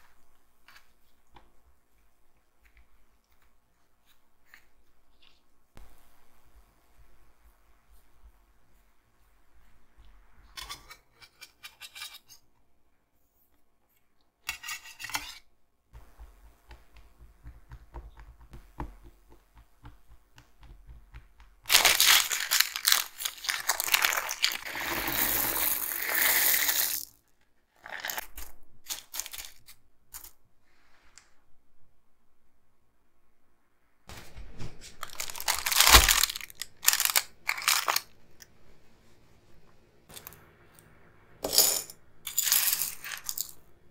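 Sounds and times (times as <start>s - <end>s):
fork tapping dough: 16.0s - 21.7s
baking paper crumpling: 21.7s - 27.1s, 27.9s - 29.8s, 34.3s - 38.2s.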